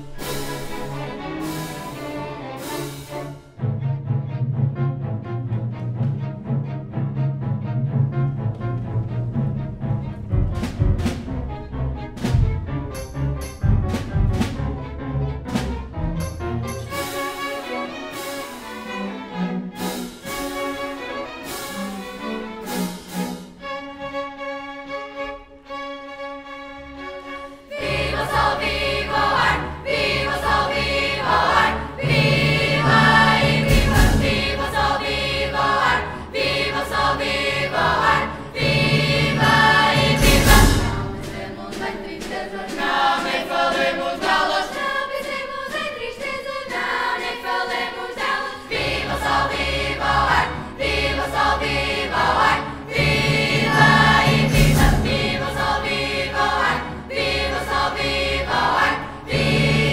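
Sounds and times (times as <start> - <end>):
children's choir singing: 0.0 - 3.4, 27.4 - 59.9
symphony orchestra: 0.0 - 59.9
loud percussion strikes: 12.2 - 18.7, 30.0 - 35.9, 38.9 - 43.4, 52.4 - 56.6.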